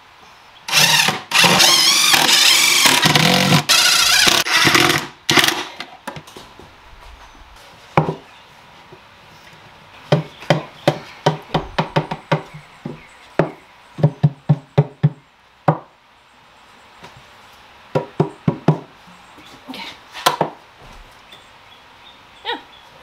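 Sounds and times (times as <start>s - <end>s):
cordless driver screwing into wood: 0.7s - 5.7s
plywood panels knocking: 10.1s - 15.9s, 17.9s - 18.9s.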